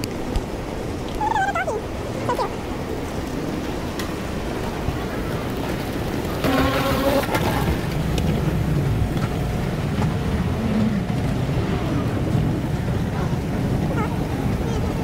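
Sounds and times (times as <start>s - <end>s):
faint voices: 1.1s - 3.2s, 10.6s - 15.0s
steady low rumble: 7.6s - 15.0s.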